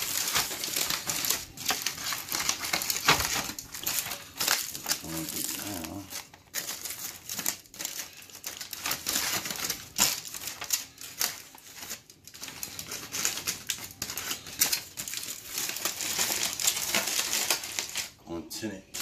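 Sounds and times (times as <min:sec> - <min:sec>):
aluminium foil crinkling: 0:00.0 - 0:19.0.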